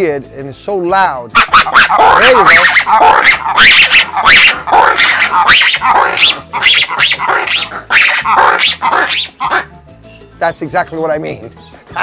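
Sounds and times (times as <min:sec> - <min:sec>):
lemurs barking shrieks: 0:01.3 - 0:09.7.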